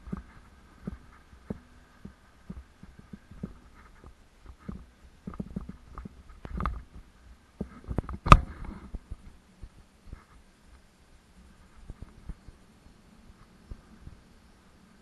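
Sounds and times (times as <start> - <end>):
bike knocking and rattling: 0.0 - 10.3.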